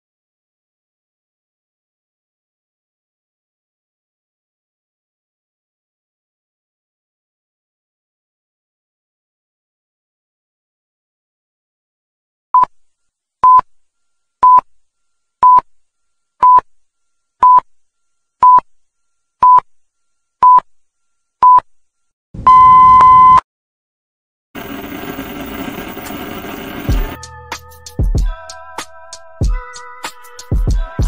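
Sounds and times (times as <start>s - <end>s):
countdown beeps: 22.5s - 23.4s.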